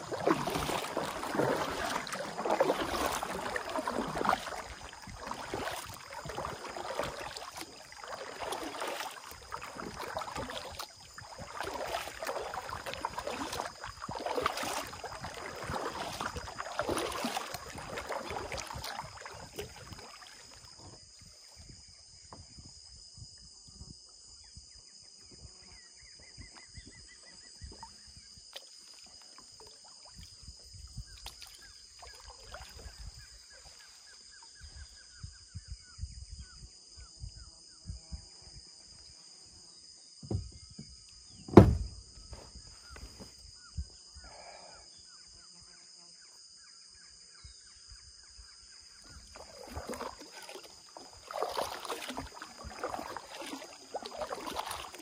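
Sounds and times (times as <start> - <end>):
paddle strokes splashing water: 0.0 - 21.3, 28.5 - 34.6, 49.1 - 55.0.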